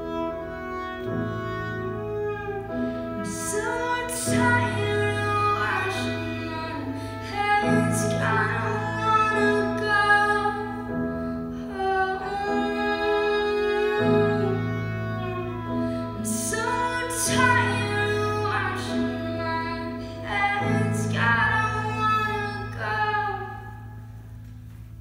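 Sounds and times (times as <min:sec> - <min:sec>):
bowed violin: 0:00.0 - 0:24.2
woman singing: 0:03.1 - 0:10.9, 0:11.6 - 0:15.6, 0:16.2 - 0:23.9.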